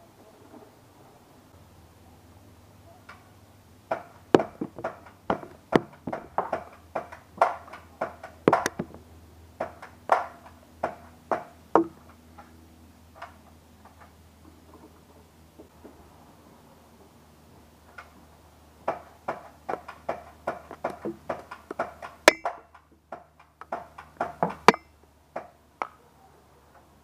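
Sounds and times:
foam darts knocking and clattering: 3.9 - 9.0, 9.6 - 12.5, 18.8 - 25.6.

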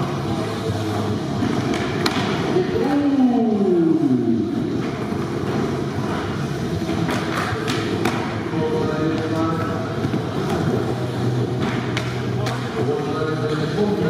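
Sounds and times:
skateboard wheels rolling: 4.5 - 12.8.

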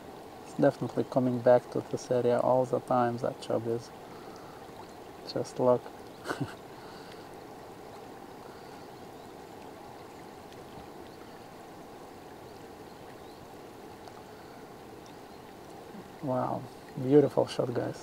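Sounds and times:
fast-flowing river water: 0.0 - 18.0
faint ticks: 6.8 - 8.9, 9.6 - 11.5, 12.4 - 16.2.

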